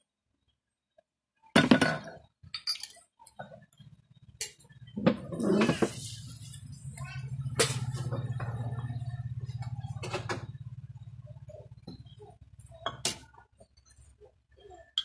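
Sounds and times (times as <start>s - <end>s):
glass bottles clinking: 1.6s - 3.6s.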